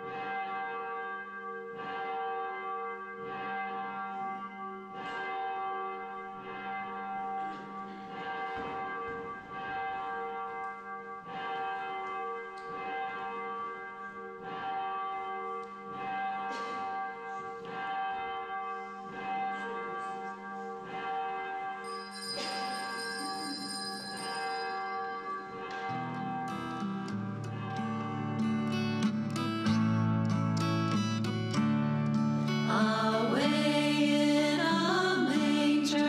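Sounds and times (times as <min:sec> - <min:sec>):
church bell ringing: 0:00.0 - 0:36.0
higher bright bell tone: 0:18.5 - 0:36.0.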